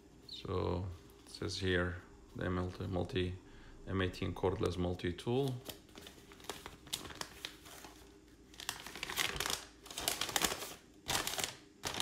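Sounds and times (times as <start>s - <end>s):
paper crinkling and rustling: 5.3s - 12.0s.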